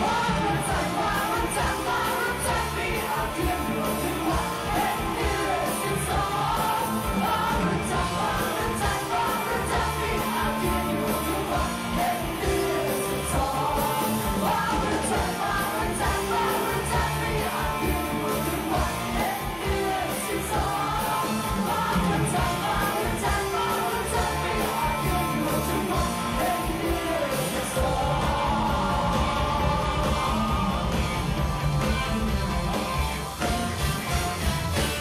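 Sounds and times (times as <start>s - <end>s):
live band playing rock-pop: 0.0s - 35.0s.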